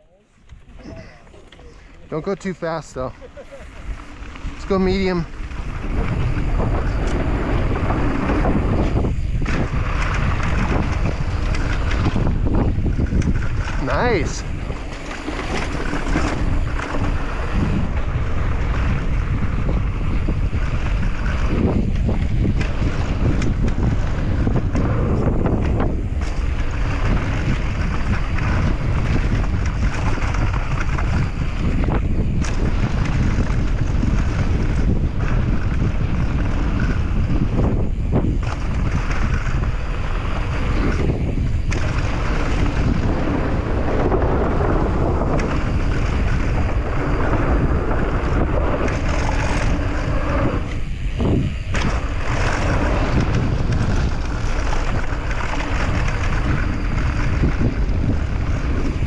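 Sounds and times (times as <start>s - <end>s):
tyres rumbling on trail: 0.0s - 59.0s
bike rattling clicks: 0.4s - 59.0s
wind buffeting microphone: 0.4s - 59.0s.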